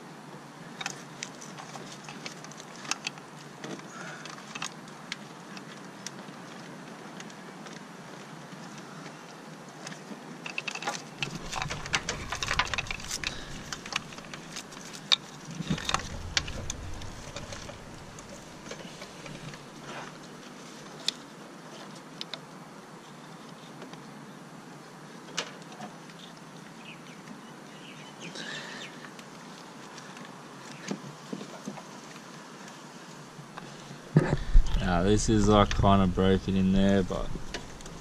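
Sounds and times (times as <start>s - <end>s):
wiring rustling: 10.5s - 20.8s, 34.4s - 38.0s
low bumps: 11.2s - 19.9s, 34.2s - 38.0s.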